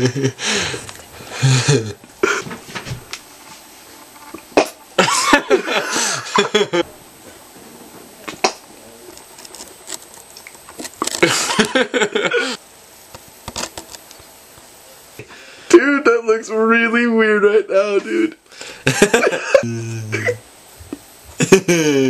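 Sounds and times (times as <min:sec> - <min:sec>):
man's wordless vocal noises: 0:19.6 - 0:20.4.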